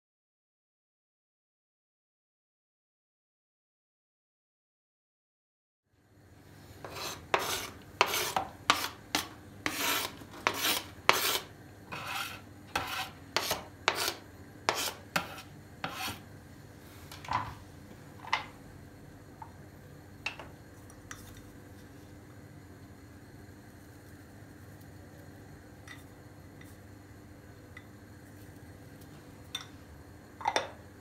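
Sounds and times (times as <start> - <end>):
knife scraping cutting board: 6.8 - 16.3.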